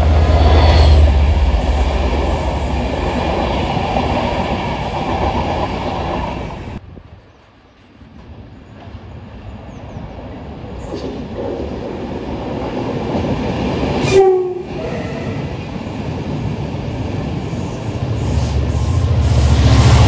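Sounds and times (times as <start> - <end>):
passenger train rumbling past: 0.0 - 20.0
train horn blast: 14.0 - 15.5.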